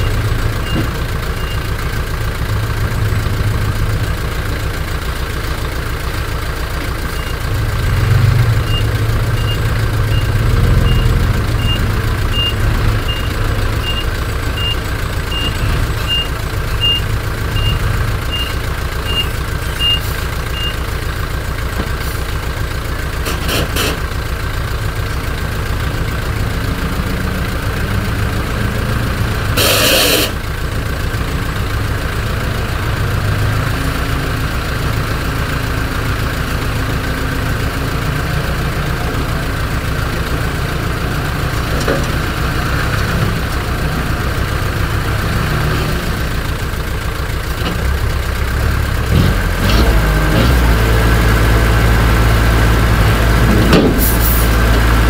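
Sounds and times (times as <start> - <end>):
heavy diesel engines running: 0.0 - 55.0
reversing alarm beep: 8.6 - 20.8
short hiss: 29.6 - 30.4.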